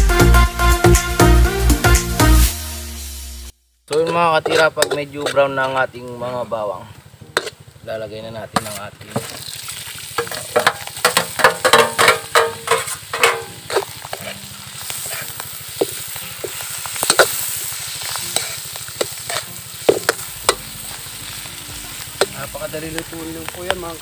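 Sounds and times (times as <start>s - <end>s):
food sizzling in a wok: 2.3s - 24.0s
spatula scraping a pan: 3.9s - 6.4s, 7.3s - 7.6s, 8.6s - 9.5s, 10.2s - 22.0s.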